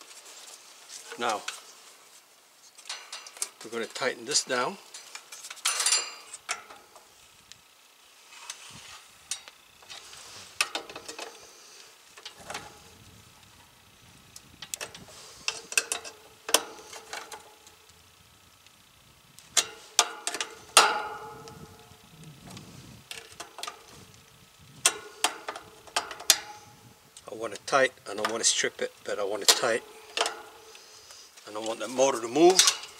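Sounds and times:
hand tool clicking on metal nuts: 0:10.6 - 0:11.4, 0:14.6 - 0:17.7, 0:19.6 - 0:21.9, 0:23.1 - 0:24.0, 0:24.8 - 0:28.7, 0:29.4 - 0:30.8, 0:31.6 - 0:32.9.

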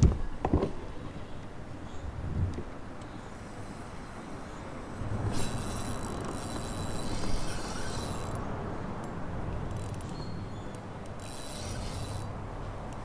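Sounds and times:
fishing reel whirring and clicking: 0:05.2 - 0:13.0.

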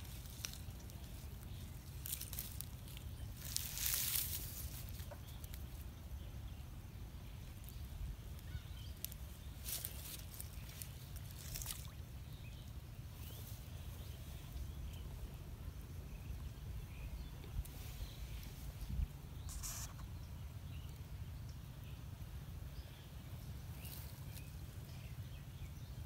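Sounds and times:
wind rumble on microphone: 0:14.3 - 0:19.5.

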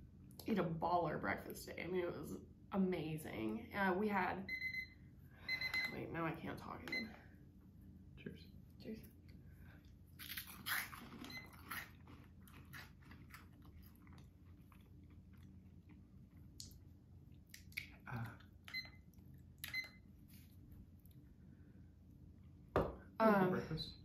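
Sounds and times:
people crunching cheese puffs: 0:10.2 - 0:16.7.

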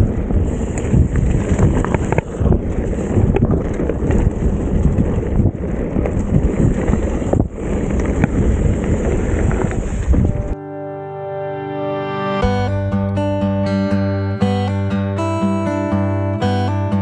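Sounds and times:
wind buffeting microphone: 0:00.0 - 0:10.6.

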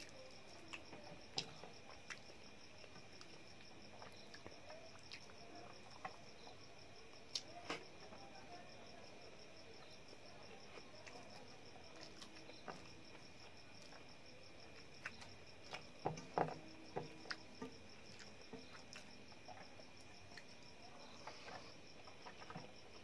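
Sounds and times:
cricket trilling: 0:00.0 - 0:23.0.

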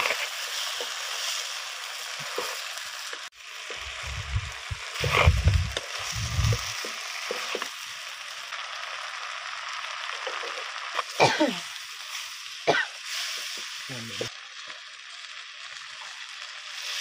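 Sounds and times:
fish sizzling in hot oil: 0:00.0 - 0:17.0
heavy low thumps: 0:03.8 - 0:06.6.

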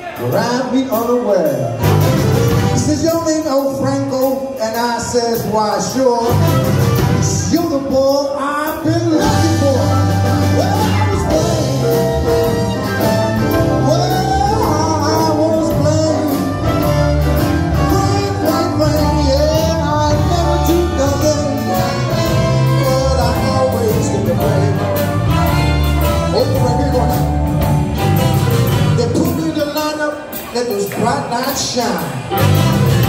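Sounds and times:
big band playing: 0:00.0 - 0:33.0.

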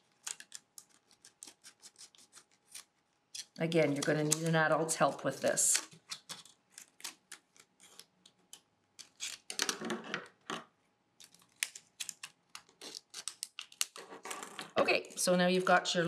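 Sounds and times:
scissors cutting plastic: 0:00.0 - 0:04.7, 0:05.5 - 0:09.6, 0:11.2 - 0:15.2.

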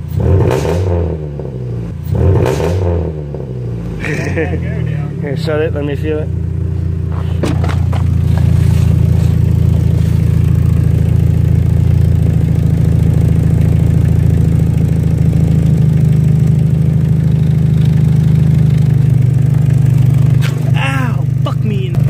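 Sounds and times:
car engine idling: 0:01.2 - 0:22.0.

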